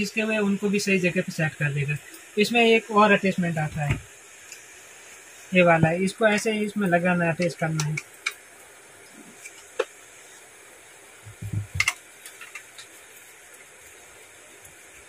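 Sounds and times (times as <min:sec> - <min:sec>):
dull knock: 0:11.3 - 0:11.9.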